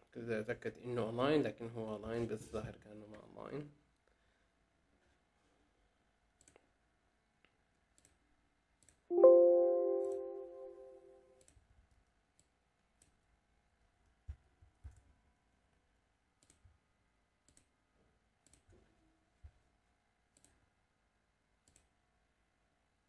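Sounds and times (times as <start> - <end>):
computer mouse clicks: 6.4 - 6.7, 7.8 - 8.2, 8.8 - 9.1, 12.3 - 13.2, 16.4 - 16.7, 17.4 - 17.8, 18.4 - 18.8, 20.3 - 20.7, 21.6 - 22.0.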